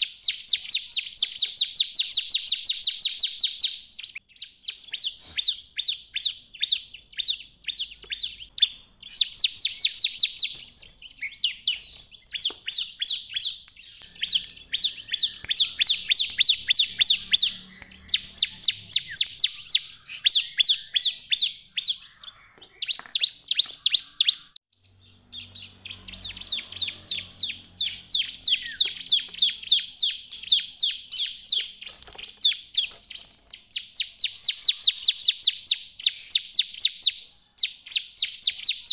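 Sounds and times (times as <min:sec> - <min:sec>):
bird singing sharp high notes: 0:00.0 - 0:37.1.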